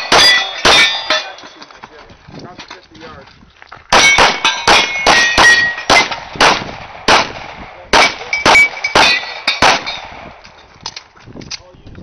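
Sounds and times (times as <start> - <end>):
pistol shots: 0.0 - 1.3, 3.9 - 10.5
metallic ringing of steel targets: 0.0 - 1.8, 3.9 - 6.3, 8.0 - 10.7.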